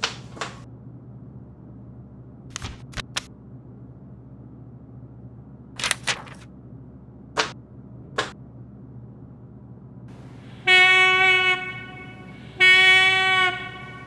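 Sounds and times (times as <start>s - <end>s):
steady low hum: 0.0s - 14.0s
paper rustling and shuffling: 5.8s - 6.5s.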